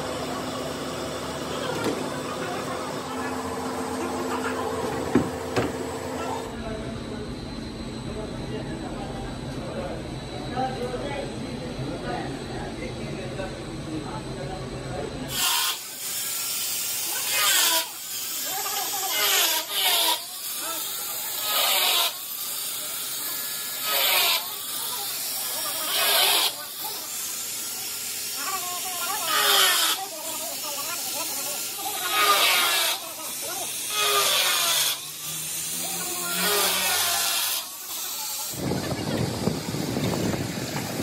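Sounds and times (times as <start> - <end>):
grinder motor whine: 15.2 - 41.0
grinder rasping plastic pipe: 15.3 - 41.0.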